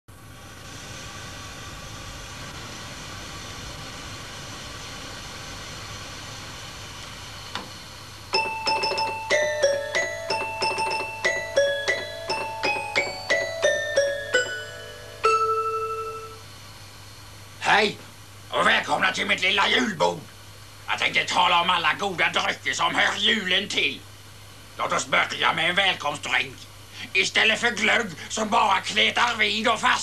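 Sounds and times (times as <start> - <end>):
steady hiss: 0.1 - 30.0
toy keyboard tune: 8.3 - 16.4.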